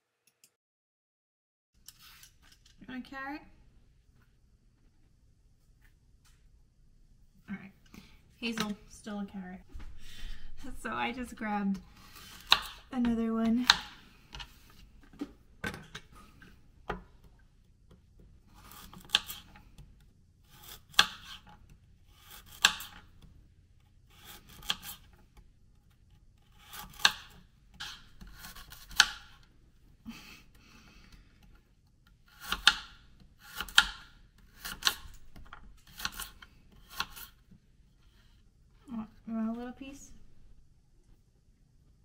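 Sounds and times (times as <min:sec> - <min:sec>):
peeler scraping a carrot: 0:20.4 - 0:23.2, 0:23.8 - 0:29.4, 0:32.2 - 0:38.4.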